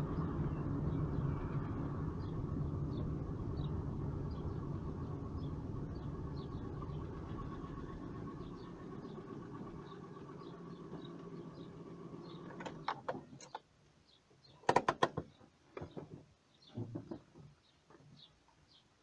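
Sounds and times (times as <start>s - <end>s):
small engine idling: 0.0s - 13.3s
sharp clicks and clunks: 14.6s - 18.0s.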